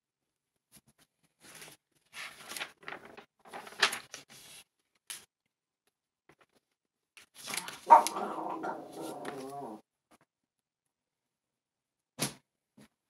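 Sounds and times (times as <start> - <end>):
paper pages rustling: 0.7 - 5.3, 6.3 - 9.6.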